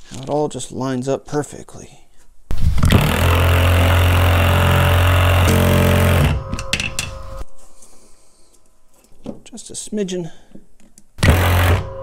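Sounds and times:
impact driver hammering screw: 11.2 - 11.9.

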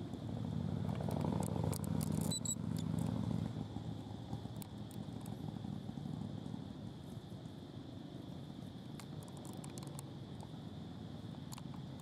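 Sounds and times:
vehicle engine rumbling: 0.0 - 12.0
faint clicks: 9.0 - 10.6.

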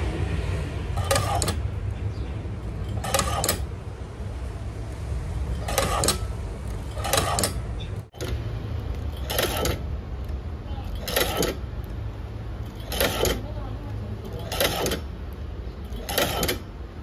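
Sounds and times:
sewing machine low hum: 2.8 - 3.7
sewing machine needle clatter: 2.9 - 3.7, 6.9 - 7.6, 10.9 - 11.6, 12.7 - 13.6, 14.2 - 15.0, 15.9 - 16.6.

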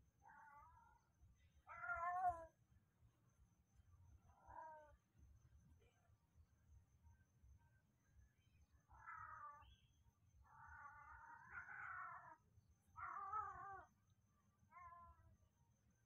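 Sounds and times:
wavering animal calls: 8.9 - 9.8, 10.4 - 12.4, 13.0 - 14.0.

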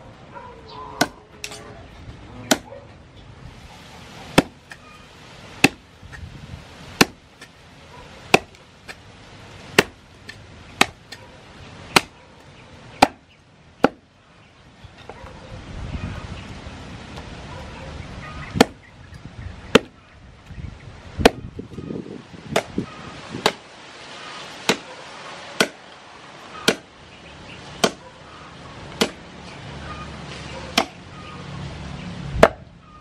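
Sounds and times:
meat cleaver chopping on wooden block: 7.0 - 7.2.

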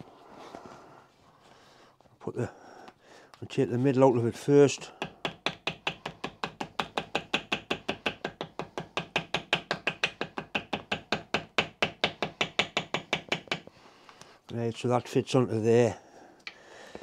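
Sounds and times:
small hammer tapping on paper: 5.0 - 13.7.

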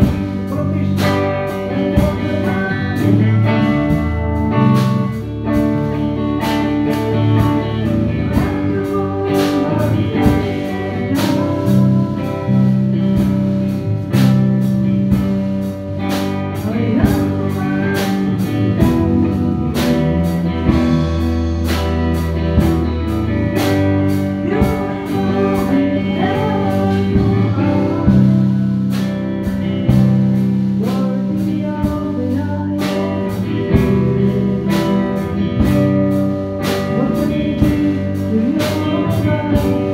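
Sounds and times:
man singing into a microphone: 0.0 - 3.8, 7.6 - 13.1, 16.4 - 20.8, 24.3 - 29.1, 30.8 - 35.8, 36.6 - 39.9
drum kit: 0.0 - 39.9
electric guitar: 0.0 - 39.9
keyboard: 0.0 - 39.9.

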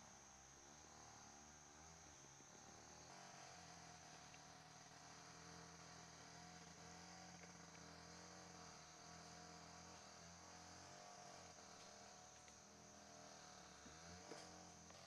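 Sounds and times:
insects buzzing: 0.0 - 15.0.

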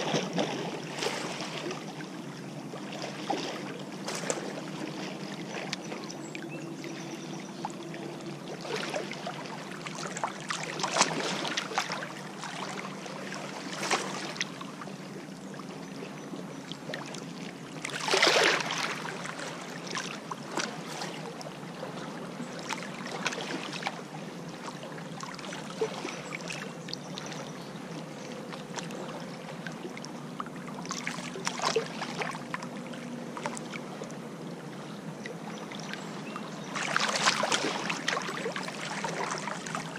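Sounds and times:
lake waves lapping on rocks: 0.0 - 1.9, 8.5 - 14.6, 17.8 - 26.7, 30.8 - 32.6, 36.7 - 39.9.

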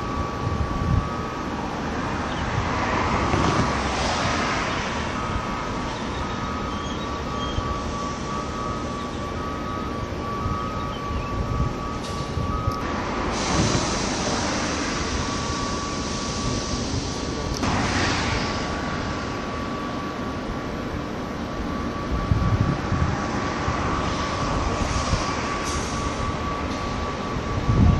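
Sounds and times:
machinery and trucks rumbling: 0.0 - 27.9
reversing alarm beeping: 0.0 - 27.9
steady high tone: 0.0 - 27.9.

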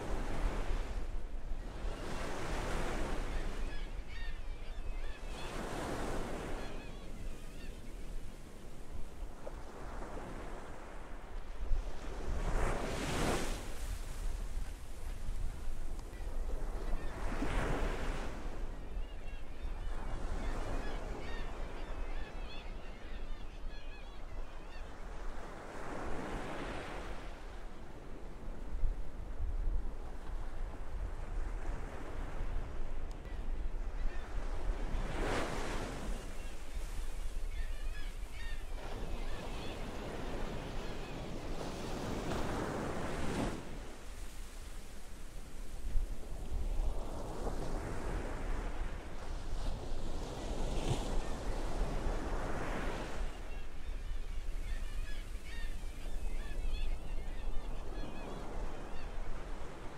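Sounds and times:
ocean surf washing on beach: 0.0 - 3.4
seagulls calling: 2.0 - 8.2, 16.2 - 26.9, 33.3 - 43.4, 51.2 - 59.7
gull calls: 3.3 - 7.8.

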